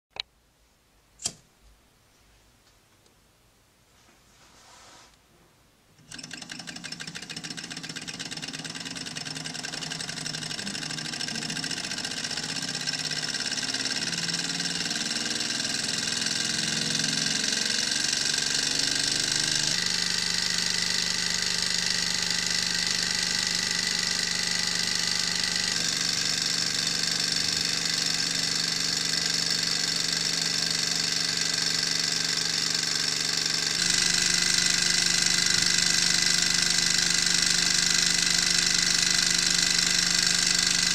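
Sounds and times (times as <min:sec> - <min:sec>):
stirling engine running: 0:06.1 - 0:23.1.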